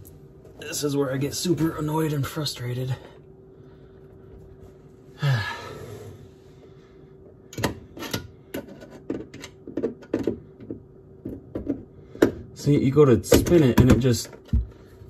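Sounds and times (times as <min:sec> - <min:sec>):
person sighing: 0:05.1 - 0:06.1.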